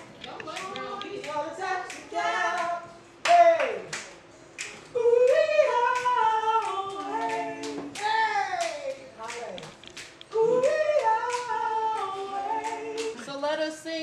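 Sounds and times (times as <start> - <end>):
people singing together: 0.0 - 3.9, 4.9 - 8.9, 10.3 - 14.0
hand claps: 0.0 - 13.2.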